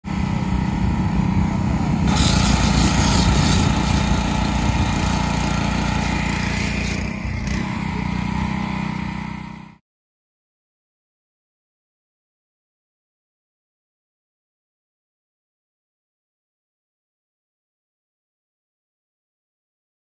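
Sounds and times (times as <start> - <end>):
pressure washer running: 0.0 - 9.8
spray hiss: 2.1 - 4.2.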